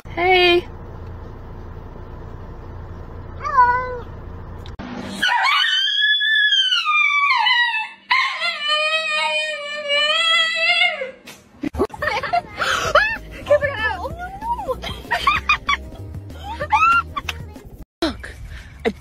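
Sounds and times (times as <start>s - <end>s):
dog howling: 5.2s - 11.2s.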